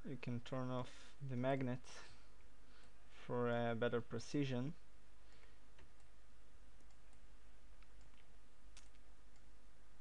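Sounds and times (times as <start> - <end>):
computer mouse clicks: 6.8 - 7.2, 7.8 - 9.5.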